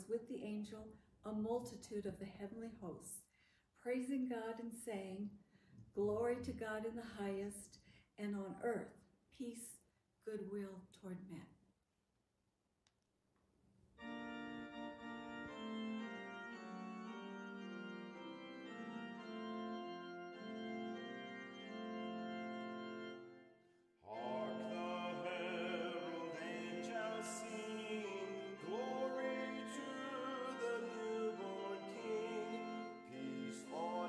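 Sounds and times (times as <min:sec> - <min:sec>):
organ playing chords: 0:14.0 - 0:34.0
person singing with vibrato: 0:24.0 - 0:34.0.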